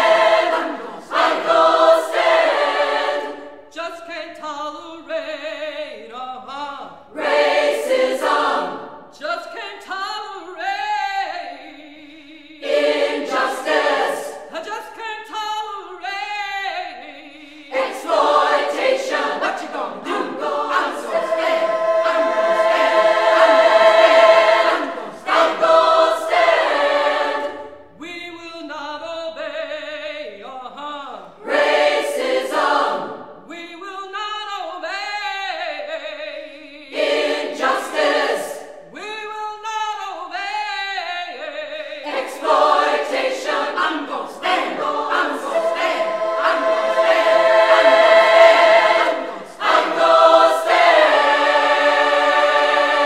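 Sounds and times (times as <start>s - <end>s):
women's choir singing: 0.0s - 3.8s, 5.2s - 9.3s, 12.6s - 14.7s, 17.3s - 28.0s, 31.3s - 33.6s, 36.4s - 39.1s, 41.8s - 53.0s.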